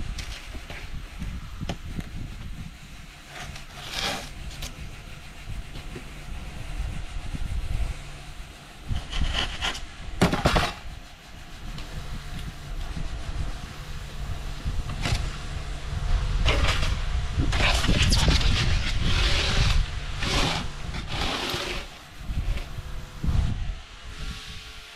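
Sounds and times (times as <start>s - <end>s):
steady low rumble: 0.0s - 24.9s
blade cutting through polystyrene: 2.2s - 6.1s, 17.6s - 22.7s.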